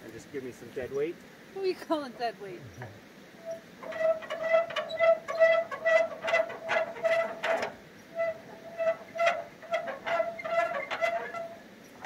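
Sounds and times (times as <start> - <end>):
metal mechanism squeaking: 3.4 - 12.0
rasping scrapes: 3.8 - 12.0.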